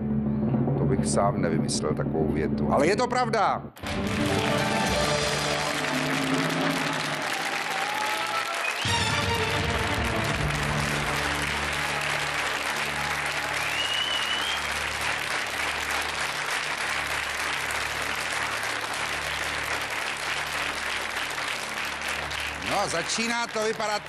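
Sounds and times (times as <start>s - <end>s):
audience applauding: 3.8s - 24.0s
low pulsing music: 8.9s - 24.0s
rising whistle: 13.4s - 14.8s.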